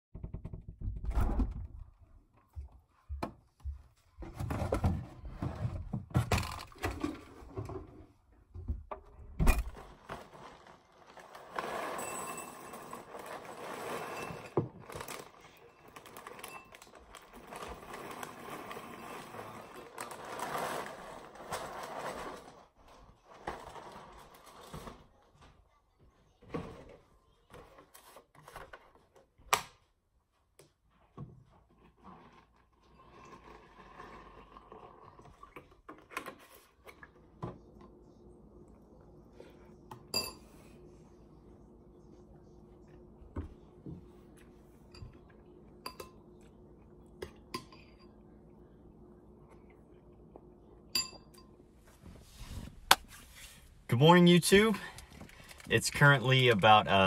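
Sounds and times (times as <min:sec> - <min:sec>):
cereal pouring into a bowl: 0:10.0 - 0:22.6.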